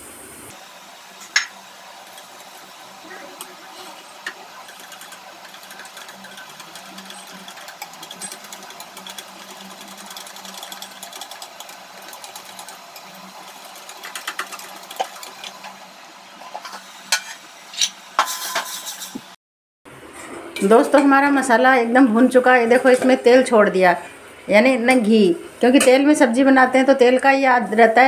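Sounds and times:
whisk clicking against steel bowl: 0:04.2 - 0:15.6.

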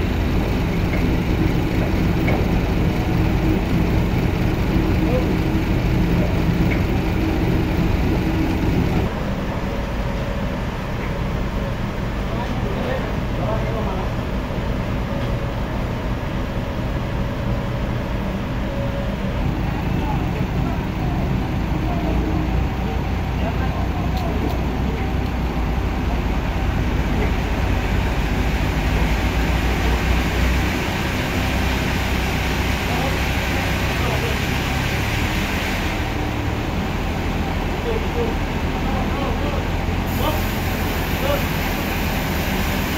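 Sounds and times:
forklift engine running: 0:00.0 - 0:42.9
sawmill machinery rumbling: 0:00.0 - 0:42.9
noisy hiss: 0:40.0 - 0:42.9.

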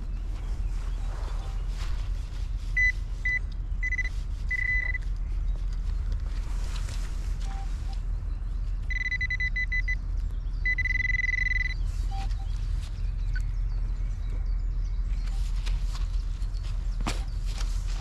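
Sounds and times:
low rumble: 0:00.0 - 0:18.0
metal detector beeping: 0:02.8 - 0:05.0, 0:07.4 - 0:08.0, 0:08.9 - 0:10.0, 0:10.6 - 0:12.5.

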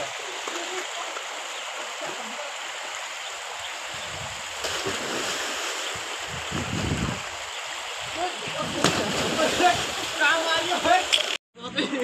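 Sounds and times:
waterfall rushing into pool: 0:00.0 - 0:06.5.

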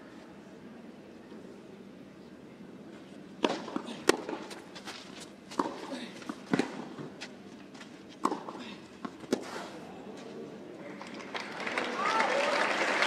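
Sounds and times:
low background noise: 0:00.0 - 0:13.0
tennis rackets hitting balls: 0:03.4 - 0:07.4, 0:08.1 - 0:09.7.

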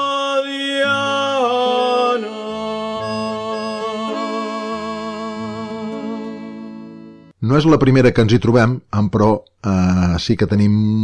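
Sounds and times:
male vocal group singing: 0:00.0 - 0:06.8
accordion chords: 0:00.8 - 0:07.4.

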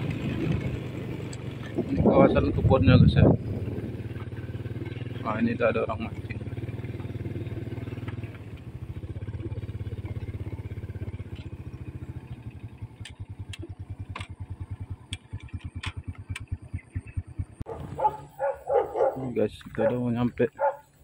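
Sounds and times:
motorcycle engine running slowly: 0:00.0 - 0:21.0
sharp clicks: 0:13.0 - 0:17.2.

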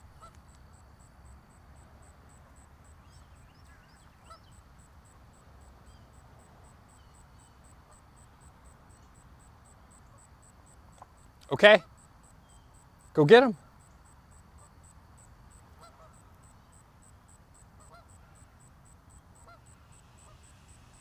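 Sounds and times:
faint goose calls: 0:00.0 - 0:00.5, 0:03.0 - 0:04.7, 0:06.9 - 0:09.1, 0:09.9 - 0:10.5, 0:11.5 - 0:12.7, 0:13.5 - 0:16.8, 0:17.5 - 0:21.0
high-pitched insect chirping: 0:00.0 - 0:21.0.

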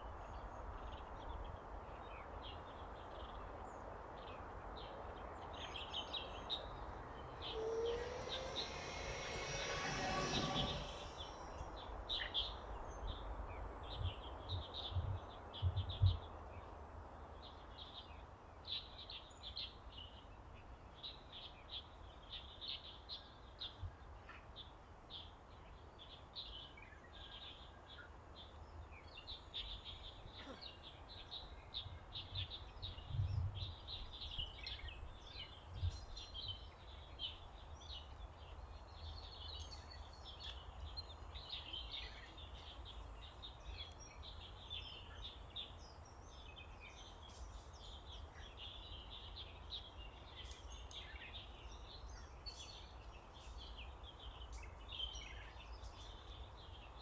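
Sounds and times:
small birds chirping: 0:28.4 - 0:57.0.

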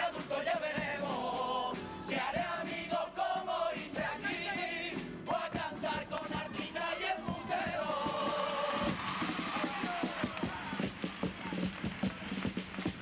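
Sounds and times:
guitar: 0:00.0 - 0:09.0
young voices singing in chorus: 0:00.0 - 0:10.8
drum strikes: 0:07.2 - 0:13.0.

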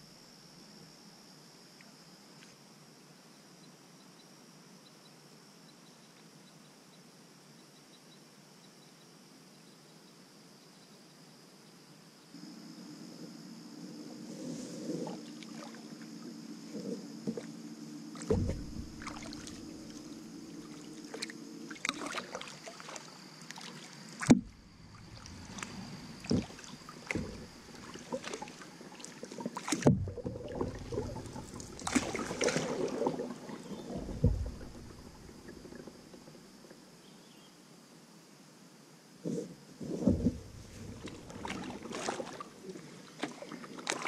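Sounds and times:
paddling water sounds: 0:13.1 - 0:36.8, 0:39.8 - 0:44.0
paddles knocking against hull: 0:18.2 - 0:20.1, 0:24.2 - 0:28.6, 0:29.5 - 0:35.9, 0:40.1 - 0:42.4.

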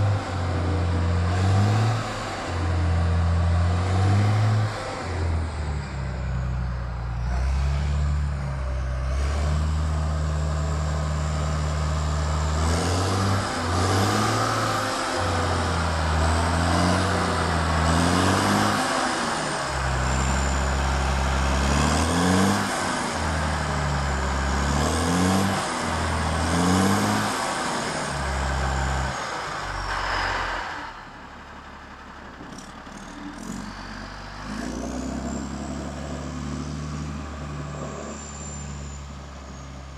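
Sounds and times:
diesel engine revving: 0:00.0 - 0:39.9.

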